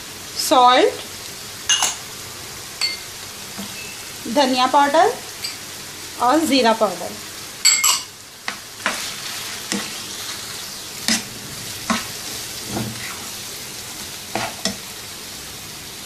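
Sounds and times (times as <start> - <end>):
chicken sizzling in oil: 0.0 - 16.0
spatula scraping and knocking pan: 8.4 - 13.4, 14.3 - 14.9.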